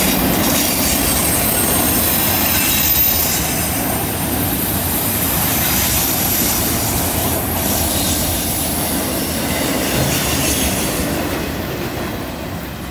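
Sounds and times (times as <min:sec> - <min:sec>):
train wheels rushing on rail: 0:00.0 - 0:12.9
high flange squeal: 0:00.4 - 0:08.7.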